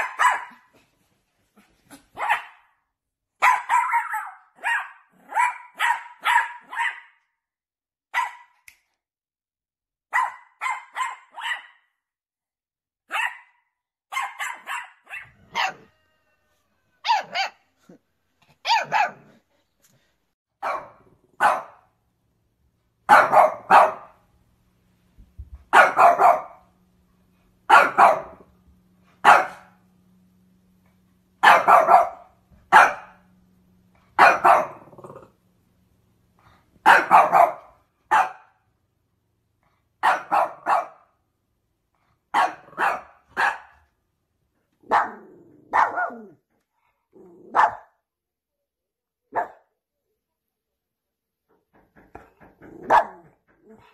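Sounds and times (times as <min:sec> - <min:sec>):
dog barking: 0:00.0 - 0:00.7, 0:02.1 - 0:02.8, 0:03.4 - 0:07.2, 0:08.1 - 0:08.6, 0:10.1 - 0:11.9, 0:13.1 - 0:16.0, 0:17.0 - 0:17.7, 0:18.6 - 0:19.4, 0:20.6 - 0:21.9, 0:23.1 - 0:24.2, 0:25.7 - 0:26.7, 0:27.7 - 0:28.5, 0:29.2 - 0:29.8, 0:31.4 - 0:33.2, 0:34.2 - 0:34.9, 0:36.8 - 0:38.6, 0:40.0 - 0:41.2, 0:42.3 - 0:43.8, 0:44.8 - 0:46.4, 0:47.5 - 0:48.0, 0:49.3 - 0:49.7, 0:52.8 - 0:53.3.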